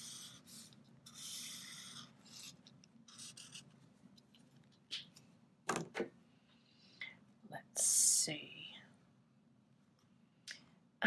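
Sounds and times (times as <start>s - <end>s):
marker scratching on plastic: 0.0s - 3.8s.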